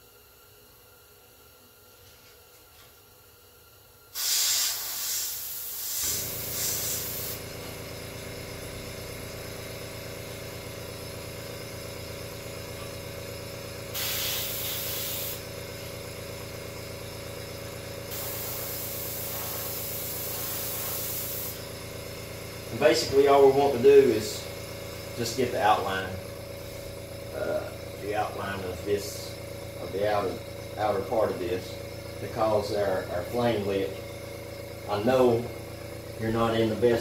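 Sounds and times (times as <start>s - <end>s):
air compressor humming: 0.0s - 37.0s
airbrush hissing: 4.1s - 7.6s, 13.9s - 15.5s, 18.1s - 21.8s.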